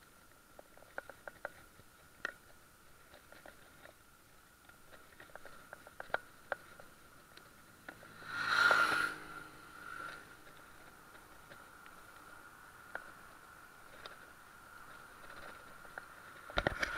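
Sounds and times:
bicycle clicking and rattling: 0:00.0 - 0:16.9.

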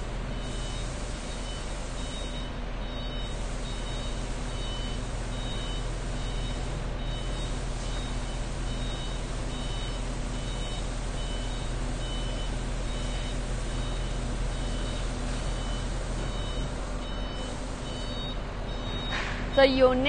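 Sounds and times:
warning beeper beeping: 0:08.7 - 0:20.0.

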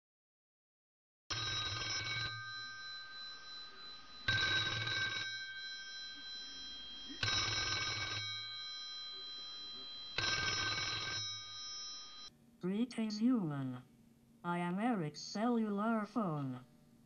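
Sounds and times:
telephone bell ringing: 0:01.3 - 0:12.3.

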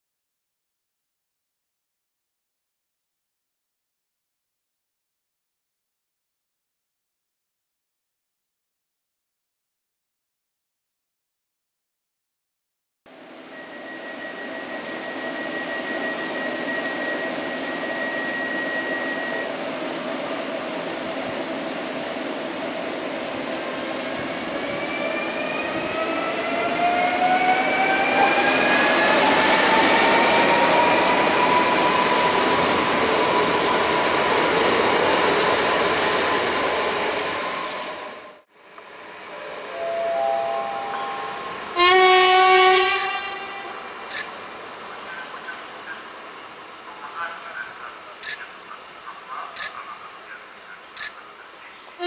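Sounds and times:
train rumbling: 0:13.1 - 0:52.0
train horn blast: 0:41.7 - 0:43.9.

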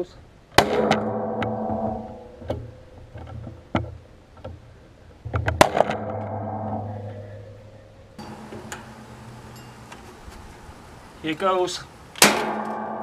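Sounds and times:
clatter of metal strikes: 0:00.6 - 0:04.0, 0:05.3 - 0:09.0, 0:12.2 - 0:13.0
nail gun shot: 0:12.2 - 0:12.8.

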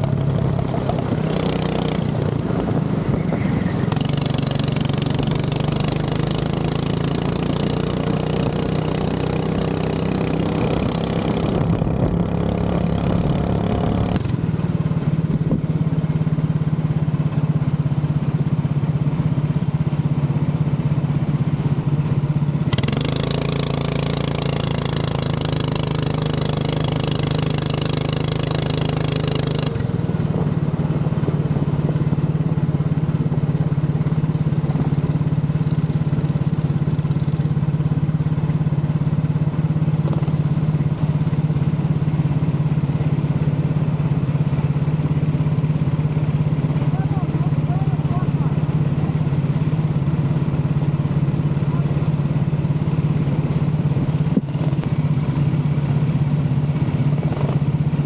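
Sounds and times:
go-kart engine running: 0:00.0 - 0:58.0
higher engine note: 0:07.9 - 0:16.6, 0:45.9 - 0:55.3.

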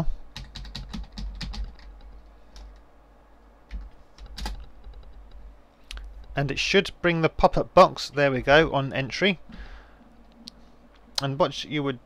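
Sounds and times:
typing on computer keyboard: 0:00.4 - 0:02.8, 0:03.7 - 0:05.2.

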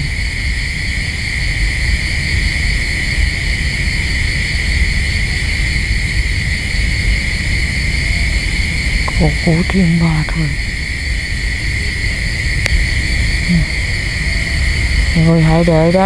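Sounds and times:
low fluctuating rumble: 0:00.0 - 0:16.0
high-pitched drone: 0:09.1 - 0:10.8, 0:13.0 - 0:16.0.

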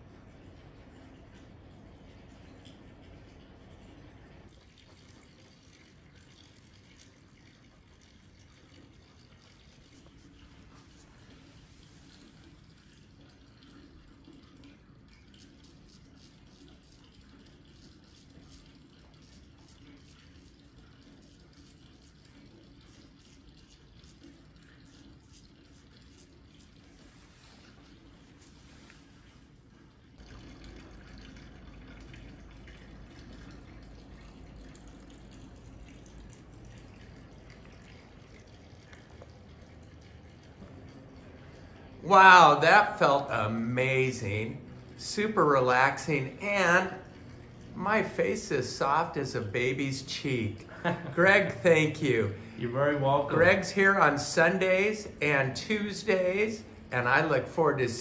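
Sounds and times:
low room hum: 0:00.0 - 0:58.0
running water: 0:00.0 - 0:58.0.

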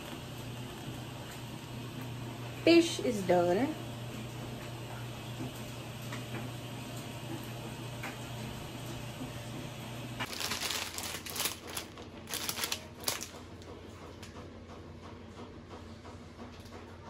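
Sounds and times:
plastic package crinkling: 0:10.2 - 0:13.5.

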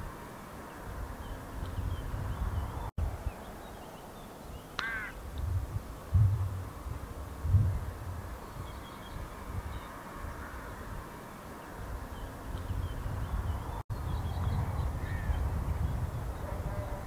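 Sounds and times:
distant small birds chirping: 0:00.0 - 0:17.0
low rumbles: 0:05.2 - 0:10.6.

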